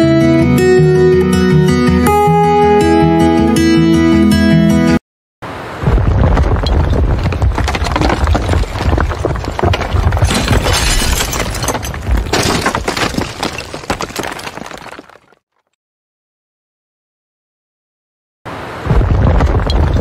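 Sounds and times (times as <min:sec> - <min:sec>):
masonry crashing and debris falling: 0:06.1 - 0:15.5.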